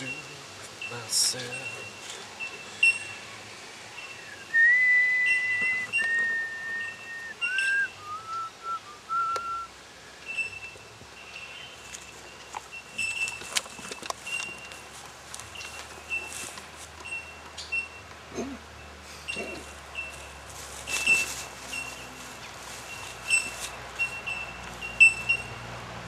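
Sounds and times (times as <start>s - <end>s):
person whistling: 4.2s - 10.5s.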